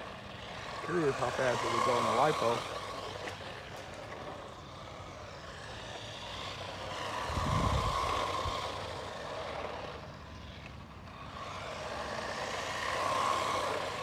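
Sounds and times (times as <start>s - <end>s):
electric motor and gears whining: 0.0s - 14.0s.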